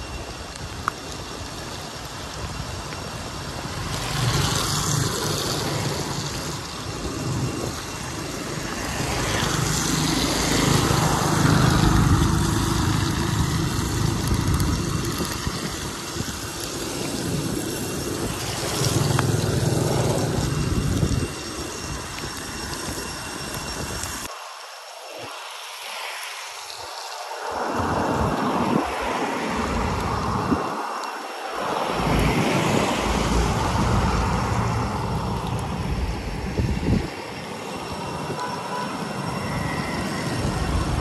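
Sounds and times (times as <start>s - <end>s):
rain: 0.0s - 41.0s
tyres hissing on wet asphalt: 0.0s - 41.0s
small motorbike engines passing: 1.6s - 23.2s, 25.1s - 41.0s
tuk-tuk passing: 3.4s - 21.6s, 31.4s - 41.0s.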